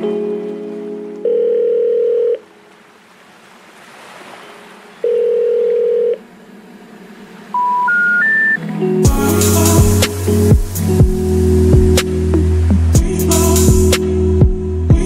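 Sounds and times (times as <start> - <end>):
long electronic tones: 5.0 - 12.9
short rising beeps: 7.5 - 8.6.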